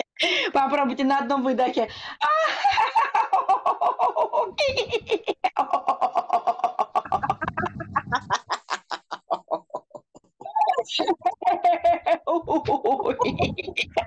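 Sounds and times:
woman laughing in rapid pulses: 2.3s - 14.0s.

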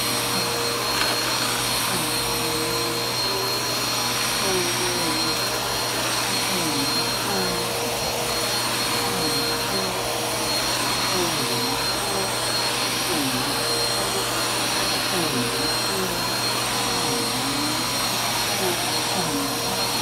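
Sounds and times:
vacuum cleaner running: 0.0s - 20.0s.

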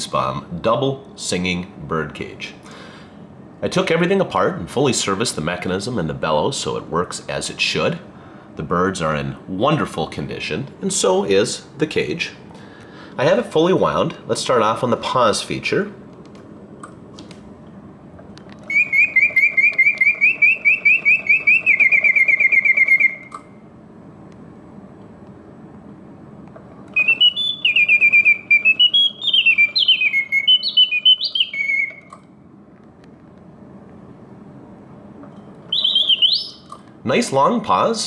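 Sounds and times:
mechanical bird whistling song: 18.6s - 23.5s, 26.9s - 32.2s, 35.7s - 36.8s.

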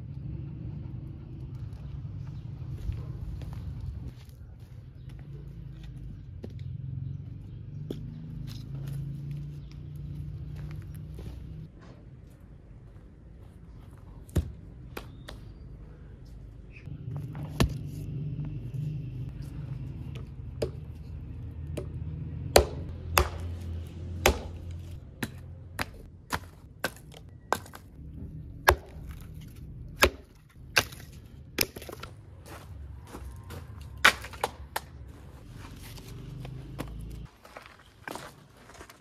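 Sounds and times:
hatchet chopping wood: 20.1s - 21.0s, 21.7s - 27.9s, 28.6s - 32.1s, 34.0s - 35.0s.

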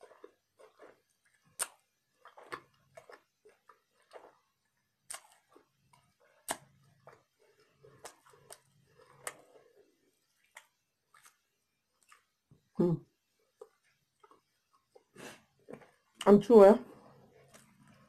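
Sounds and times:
person chewing crunchy food: 0.0s - 12.5s, 13.5s - 16.2s, 17.0s - 18.0s.

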